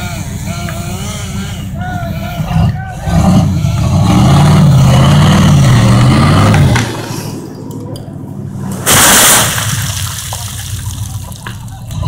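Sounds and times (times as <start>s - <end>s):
truck engine revving: 0.0s - 12.0s
tree crashing to the ground: 8.7s - 11.8s.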